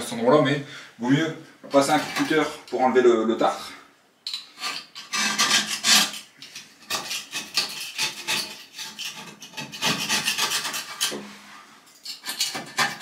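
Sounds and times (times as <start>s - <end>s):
knife blade scraping ceramic: 4.3s - 11.2s, 12.0s - 13.0s.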